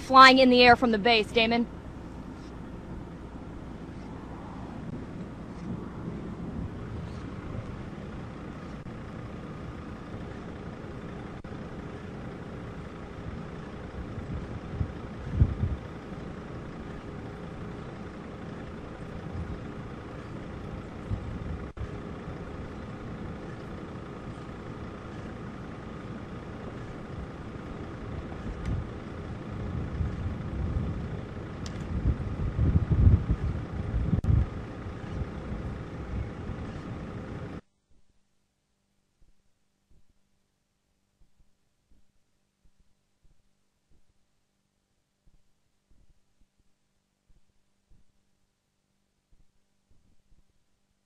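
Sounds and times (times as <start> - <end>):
low rumble: 1.4 - 37.6
wind buffeting microphone: 4.0 - 10.7, 13.3 - 37.6.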